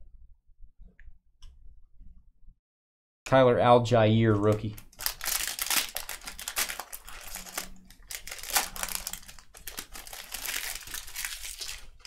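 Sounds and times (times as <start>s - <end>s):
plastic wrappers crinkling: 4.4s - 12.0s.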